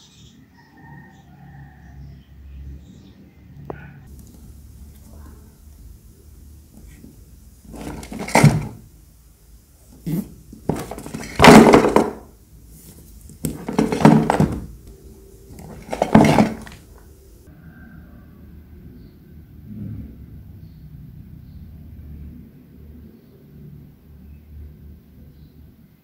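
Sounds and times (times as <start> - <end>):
cardboard box scraping: 7.7 - 8.8, 9.9 - 12.2, 13.5 - 14.7, 15.5 - 16.9.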